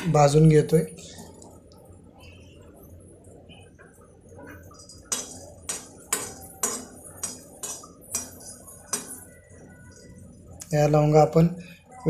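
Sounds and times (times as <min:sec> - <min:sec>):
metal spoon scraping metal pan: 0:04.5 - 0:09.4.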